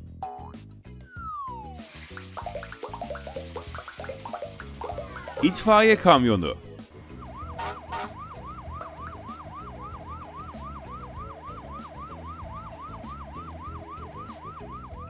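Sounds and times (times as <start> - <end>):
cartoon siren yelping: 7.3 - 15.0.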